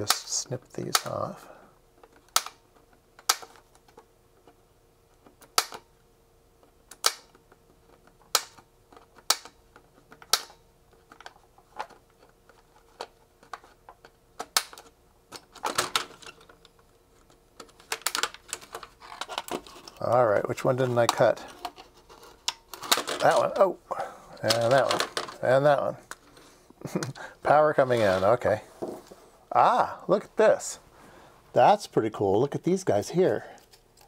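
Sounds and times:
handling rustle: 24.4s - 29.4s.

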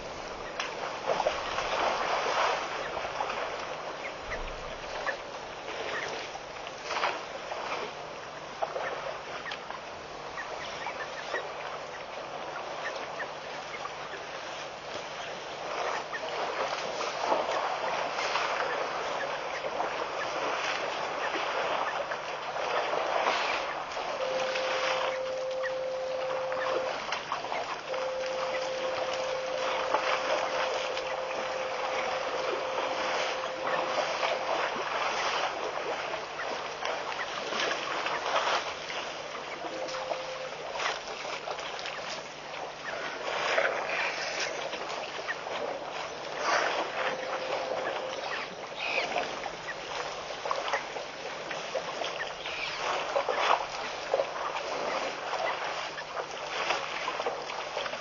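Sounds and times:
wind and water rushing: 0.0s - 58.0s
thin steady tone: 24.2s - 35.7s, 39.6s - 41.0s, 46.6s - 49.5s.

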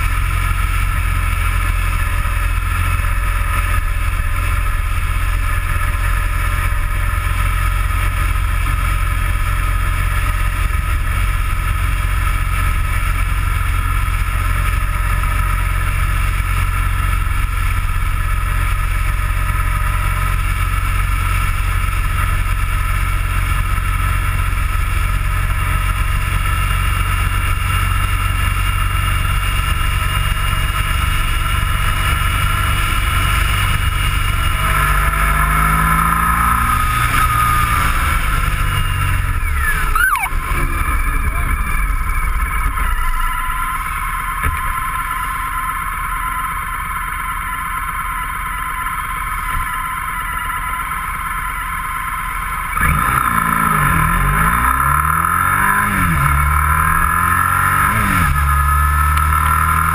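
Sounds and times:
vehicle cruising on road: 0.0s - 59.9s
faint whine rising in pitch: 32.6s - 46.8s.

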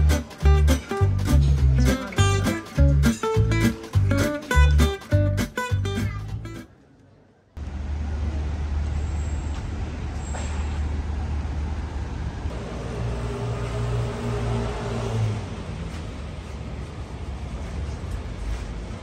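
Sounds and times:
traffic rumble: 5.9s - 19.0s
engine hum: 7.6s - 19.0s.

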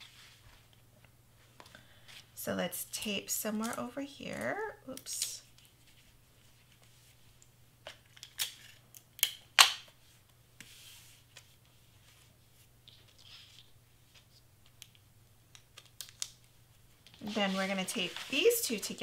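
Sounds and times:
cardstock rustling: 17.1s - 19.0s.

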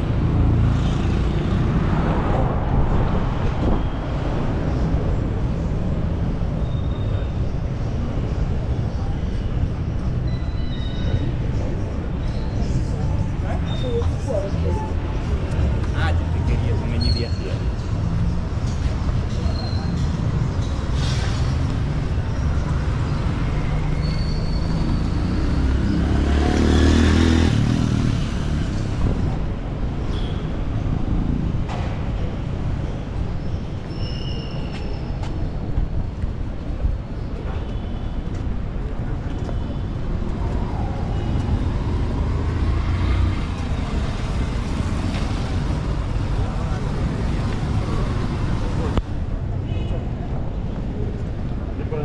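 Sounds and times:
traffic rumble: 0.0s - 52.0s
vehicle engine passing: 24.8s - 28.8s.

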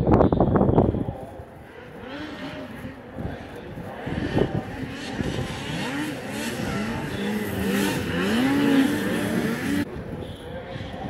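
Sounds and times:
snowmobile engines revving: 1.6s - 9.9s.

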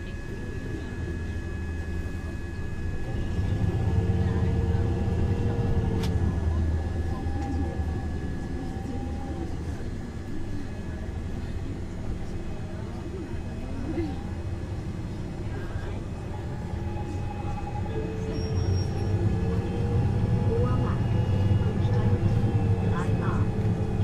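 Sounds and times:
bus engine idling: 0.0s - 24.0s.

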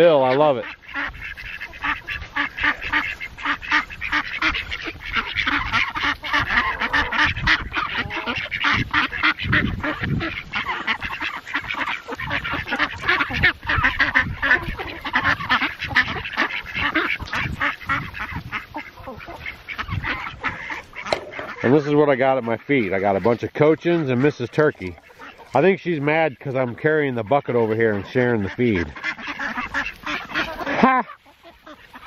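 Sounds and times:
ducks quacking: 0.0s - 32.0s.

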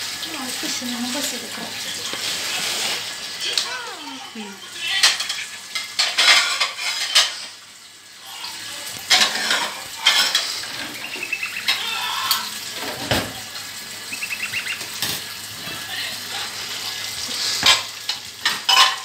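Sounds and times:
bird chirping: 10.9s - 11.7s, 14.1s - 14.9s.

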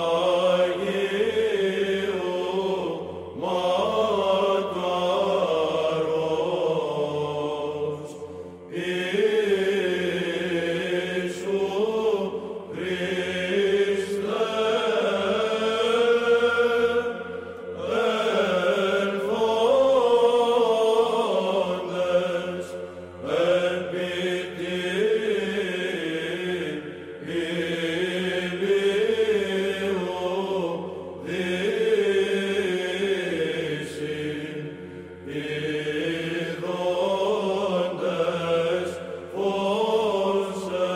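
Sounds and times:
voices chanting in long phrases: 0.0s - 40.9s.

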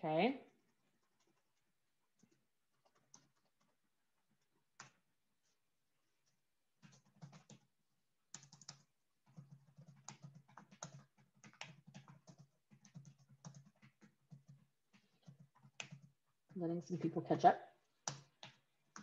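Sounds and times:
typing on computer keyboard: 2.2s - 3.8s, 6.8s - 7.7s, 8.3s - 16.2s, 18.0s - 19.0s.

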